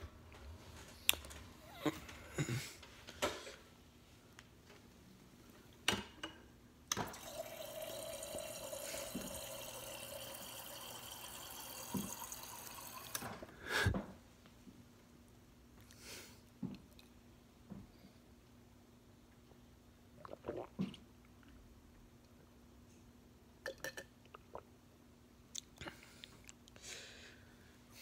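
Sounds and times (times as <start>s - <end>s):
water running into a glass: 7.0s - 13.3s.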